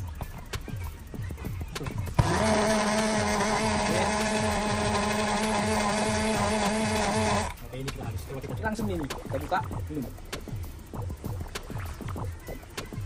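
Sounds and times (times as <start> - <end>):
blender motor running: 2.2 - 7.6.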